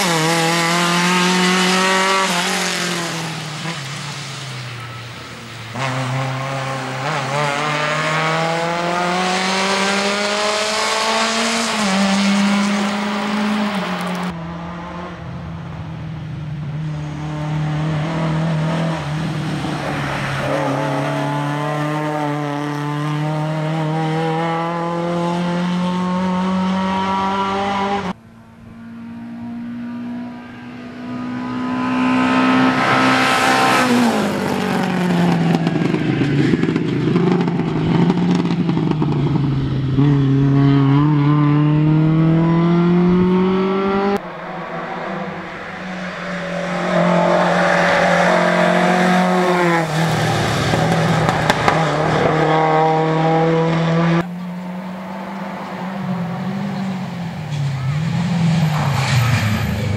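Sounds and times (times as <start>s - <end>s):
rally car engine revving: 0.0s - 4.4s, 5.7s - 15.3s, 16.8s - 59.9s
car passing close by: 28.8s - 36.8s, 40.4s - 59.9s.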